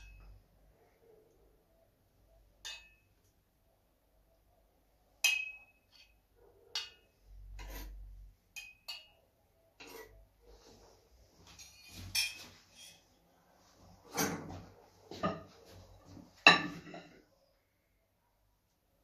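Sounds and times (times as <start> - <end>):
metal spoon clinking on saucepan: 0.0 - 0.4, 2.6 - 3.2, 5.2 - 7.1, 8.5 - 9.2, 11.7 - 13.1
spoon scraping saucepan: 7.4 - 9.1, 9.8 - 10.3.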